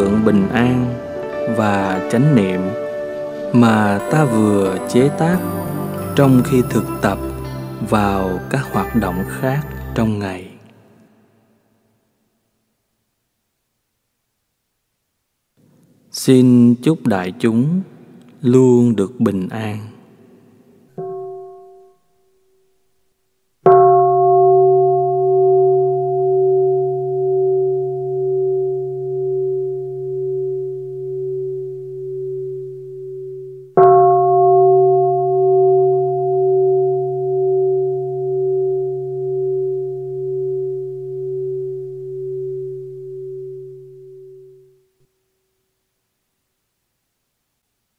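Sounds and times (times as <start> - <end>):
meditation bowl bell ringing: 3.5 - 10.1, 21.0 - 22.7, 23.7 - 44.9.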